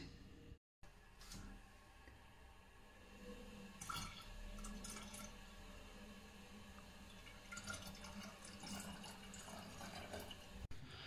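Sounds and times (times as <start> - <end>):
low steady hum: 0.0 - 11.0
water dripping: 3.6 - 10.7.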